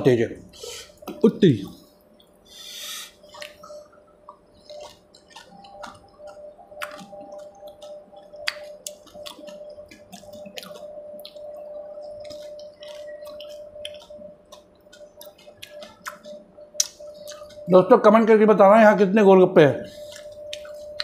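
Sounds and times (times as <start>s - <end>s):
faint steady hum: 0.0s - 21.0s
wet crunching and chewing: 3.2s - 17.7s, 19.9s - 21.0s.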